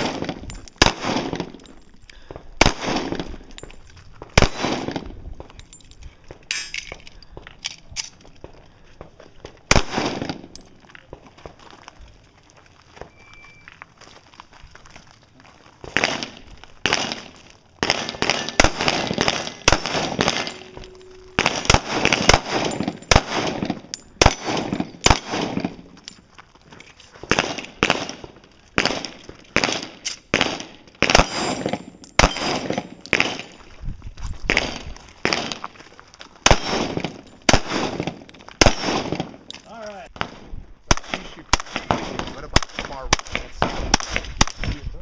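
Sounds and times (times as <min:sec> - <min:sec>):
handgun shots with echo: 0:16.0 - 0:25.8, 0:28.8 - 0:33.5.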